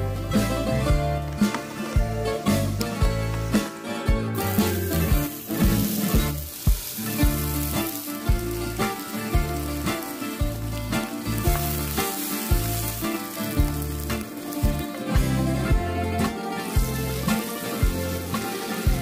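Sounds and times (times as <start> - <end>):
background music with a beat: 0.0 - 19.0
oil sizzling in a frying pan: 4.4 - 19.0.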